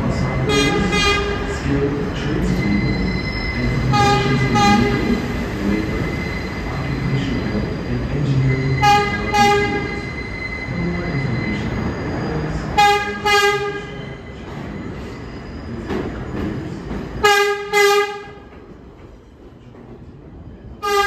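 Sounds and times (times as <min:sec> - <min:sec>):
train rumble: 0:00.0 - 0:21.0
train horn blasts: 0:03.9 - 0:05.1, 0:08.8 - 0:09.9, 0:12.8 - 0:13.9, 0:17.2 - 0:18.4.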